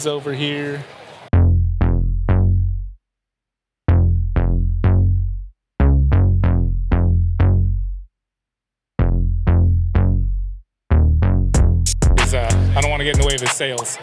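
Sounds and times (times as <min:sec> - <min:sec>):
deep bass notes: 0:01.3 - 0:03.0, 0:03.9 - 0:08.1, 0:09.0 - 0:13.4
electronic drum machine beat: 0:11.3 - 0:14.0.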